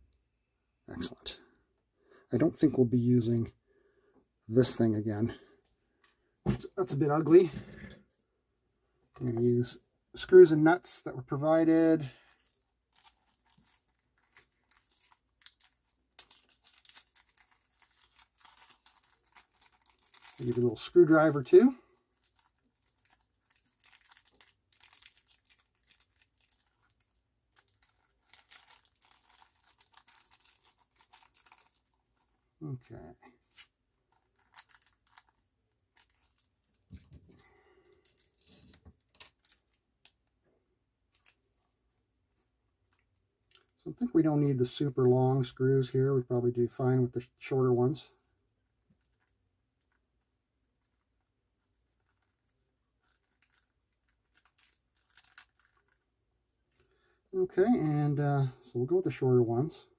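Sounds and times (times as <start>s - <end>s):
plastic bag crinkling: 12.1s - 40.3s, 51.6s - 56.1s.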